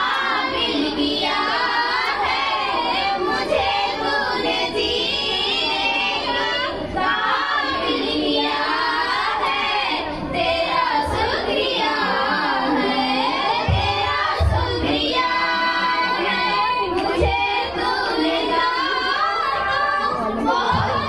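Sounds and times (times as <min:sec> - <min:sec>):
girls singing into microphones: 0:00.0 - 0:21.0
low thumps: 0:13.6 - 0:15.4, 0:20.7 - 0:21.0.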